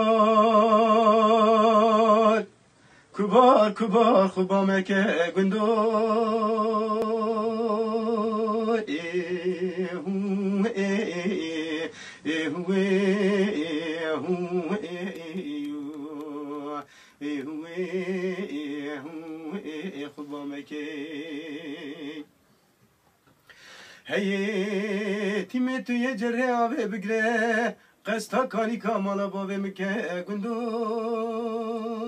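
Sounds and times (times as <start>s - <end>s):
man singing unaccompanied: 0.0s - 22.4s, 24.0s - 32.0s
singer breathing: 2.7s - 3.2s, 11.9s - 12.3s, 16.8s - 17.2s, 23.4s - 24.1s, 27.8s - 28.0s.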